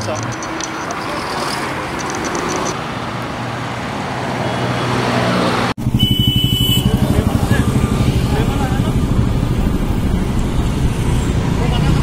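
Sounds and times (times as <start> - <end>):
road traffic passing: 0.0 - 12.0
pulsing low rumble: 5.8 - 12.0.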